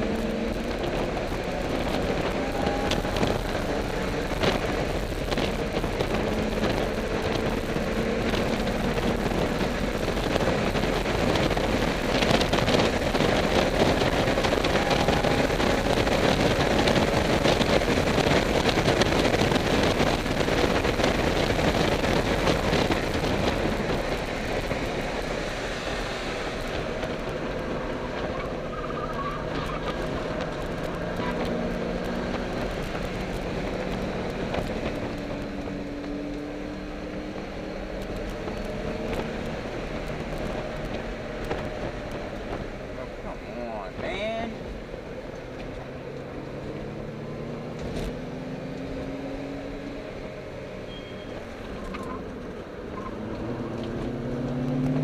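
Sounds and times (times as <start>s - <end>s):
car engine running hard: 0.0s - 55.0s
wind and tyre noise: 0.0s - 55.0s.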